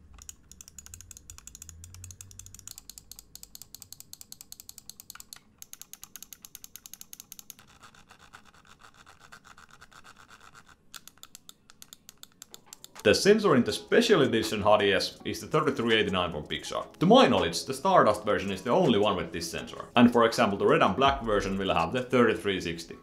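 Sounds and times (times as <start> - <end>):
mouse scroll wheel clicking: 0.0 - 13.1.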